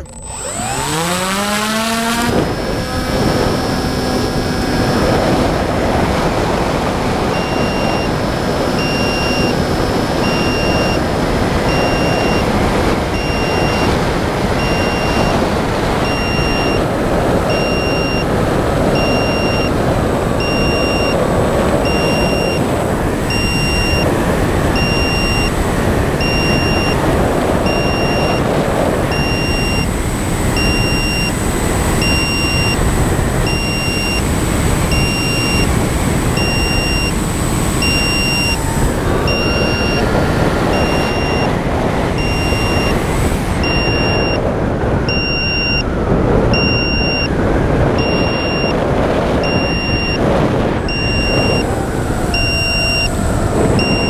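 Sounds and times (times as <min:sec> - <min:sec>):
electric motor whine: 0:00.0 - 0:54.0
wind rushing over microphone: 0:00.0 - 0:54.0
short electronic beep: 0:07.3 - 0:11.0, 0:13.2 - 0:13.9, 0:14.6 - 0:15.4, 0:16.0 - 0:16.8, 0:17.5 - 0:18.3, 0:19.0 - 0:19.7, 0:20.4 - 0:21.2, 0:21.8 - 0:22.6, 0:23.3 - 0:24.1, 0:24.8 - 0:25.5, 0:26.2 - 0:27.0, 0:29.1 - 0:29.9, 0:36.4 - 0:37.2, 0:37.8 - 0:38.6, 0:39.2 - 0:40.1, 0:40.7 - 0:41.5, 0:42.2 - 0:43.0, 0:43.6 - 0:44.4, 0:45.1 - 0:45.9, 0:46.5 - 0:47.3, 0:48.0 - 0:48.8, 0:49.4 - 0:50.2, 0:50.9 - 0:53.2, 0:53.8 - 0:54.0.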